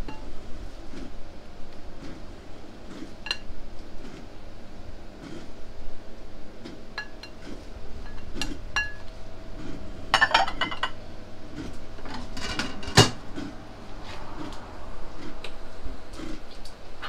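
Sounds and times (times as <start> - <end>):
ceramic dishes clinking and clattering: 8.1 - 9.1, 10.2 - 11.0.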